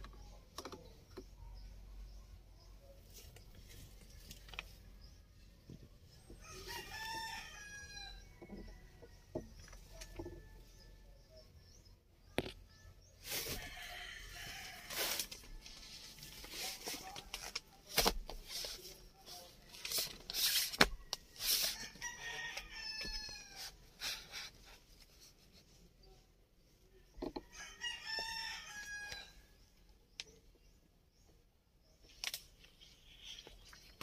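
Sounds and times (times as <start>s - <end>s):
rooster crowing: 6.4s - 8.8s, 27.5s - 29.3s.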